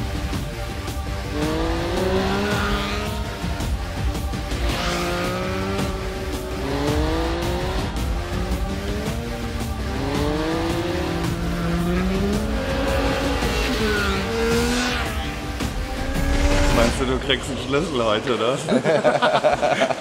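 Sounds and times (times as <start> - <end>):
motorcycle engine accelerating: 0.0 - 17.2
music: 0.0 - 20.0.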